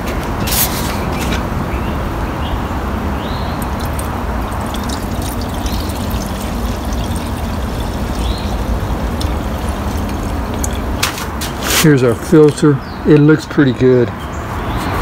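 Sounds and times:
low steady rumble: 0:01.9 - 0:11.3
liquid trickling into tank: 0:03.6 - 0:11.3.

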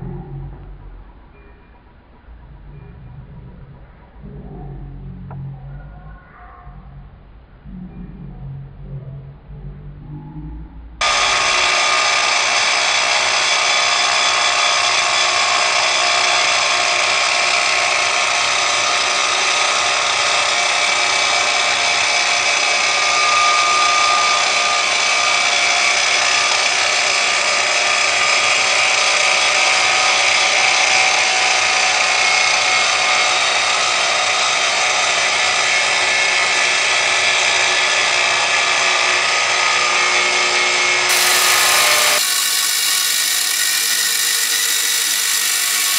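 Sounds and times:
angle grinder cutting steel: 0:11.0 - 0:45.9.

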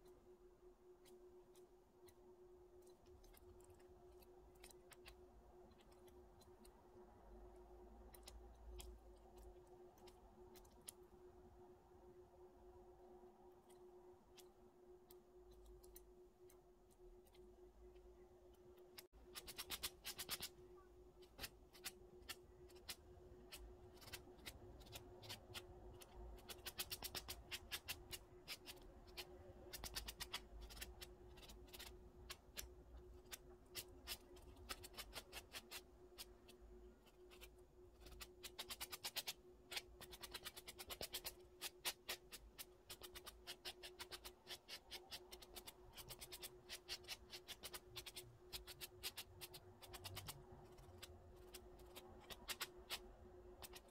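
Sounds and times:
sanding block scratching fingernails: 0:19.3 - 0:20.6, 0:21.2 - 0:53.9.

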